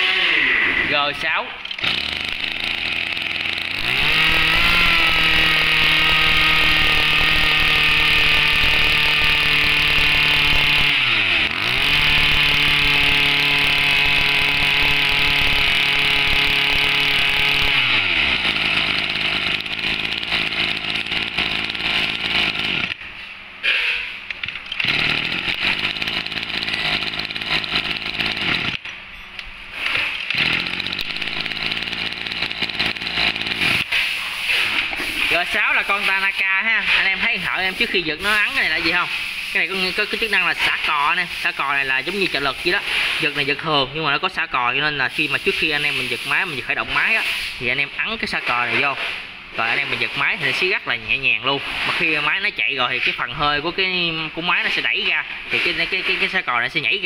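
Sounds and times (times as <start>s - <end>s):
brush-cutter engine running: 0.0s - 23.0s, 24.7s - 28.8s, 29.8s - 43.6s.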